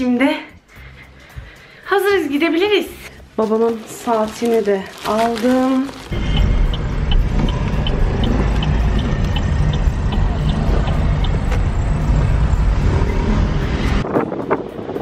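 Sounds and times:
car engine and road noise: 0:04.6 - 0:15.0
light ticking: 0:06.2 - 0:12.7.

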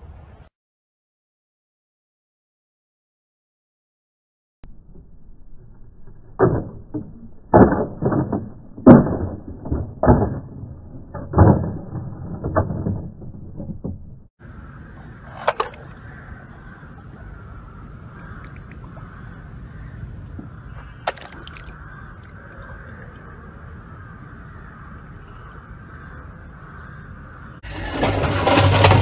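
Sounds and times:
swimming pool water: 0:15.1 - 0:19.4, 0:20.8 - 0:23.5.

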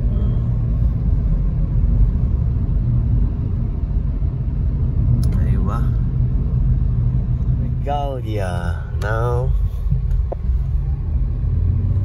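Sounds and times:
car cabin road and engine rumble: 0:00.0 - 0:12.0.

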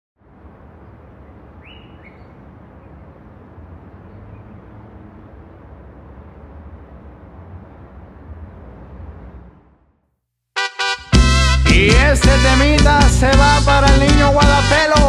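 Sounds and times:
steady low rumble: 0:00.2 - 0:10.0
bird chirping: 0:00.7 - 0:04.8.

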